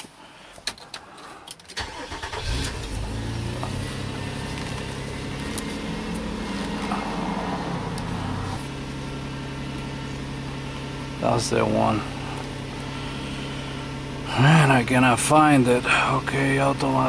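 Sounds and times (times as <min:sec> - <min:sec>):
car engine starting and idling: 0:00.6 - 0:17.0.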